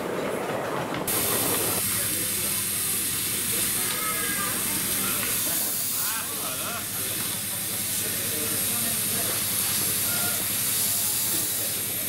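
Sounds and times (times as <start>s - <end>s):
steam hissing: 1.1s - 12.0s.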